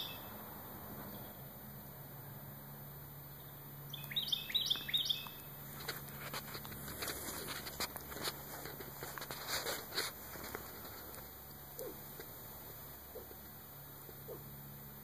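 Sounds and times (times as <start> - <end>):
songbird chirping: 0.0 - 1.6, 2.2 - 6.8
rustling and clicks: 5.7 - 12.4.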